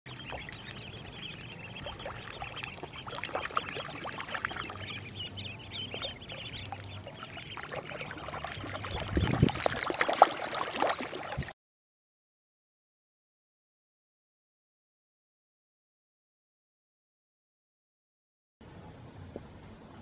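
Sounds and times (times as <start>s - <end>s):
ducklings peeping: 0.1s - 11.2s
splashing water: 0.1s - 11.5s.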